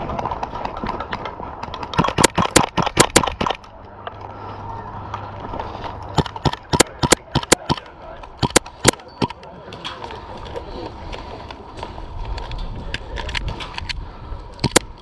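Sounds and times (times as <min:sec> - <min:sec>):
airsoft pistol shots: 0:01.9 - 0:03.6, 0:06.2 - 0:07.8, 0:08.4 - 0:09.0.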